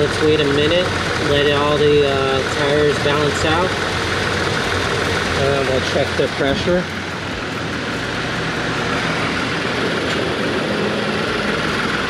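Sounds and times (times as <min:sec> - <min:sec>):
air compressor running: 0:00.0 - 0:12.0.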